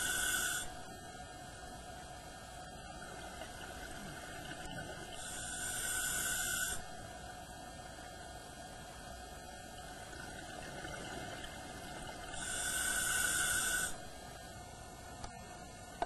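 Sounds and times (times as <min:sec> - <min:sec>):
diver breathing through regulator: 0:00.0 - 0:00.8, 0:05.1 - 0:06.9, 0:12.3 - 0:14.0
steady background hum: 0:00.0 - 0:16.0.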